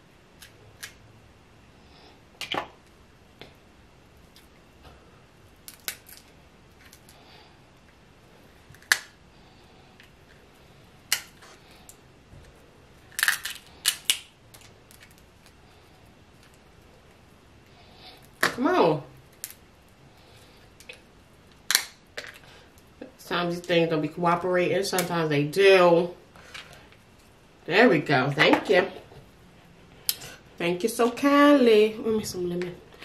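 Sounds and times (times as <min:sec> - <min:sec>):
crab shells cracking: 0:05.6 - 0:07.2, 0:08.7 - 0:09.2, 0:13.0 - 0:15.6, 0:20.8 - 0:22.4.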